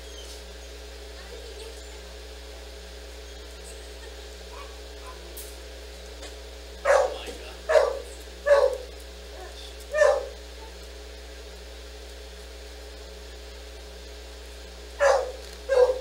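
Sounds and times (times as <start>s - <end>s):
low electrical hum: 0.0s - 16.0s
dog barking: 4.0s - 5.3s, 6.8s - 10.8s, 15.0s - 16.0s.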